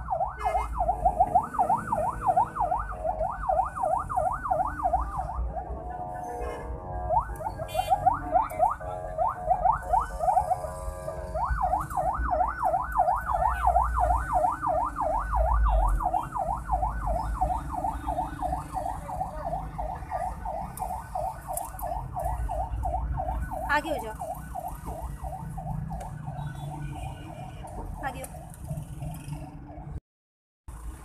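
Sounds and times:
siren yelp: 0.0s - 29.9s.

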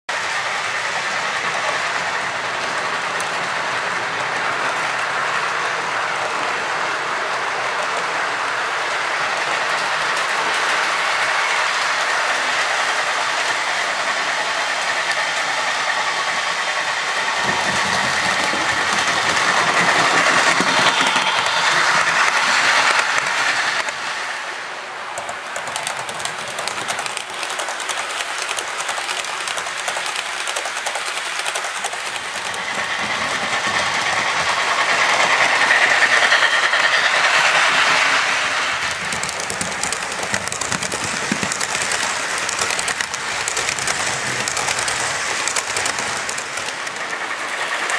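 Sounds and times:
model train running on track: 0.1s - 47.9s
wheels clicking over rail joints: 9.0s - 24.1s, 25.1s - 47.9s.

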